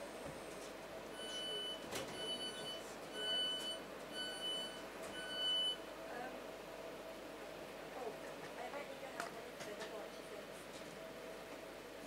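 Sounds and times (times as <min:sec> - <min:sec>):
train door warning beeps: 0:01.1 - 0:05.8.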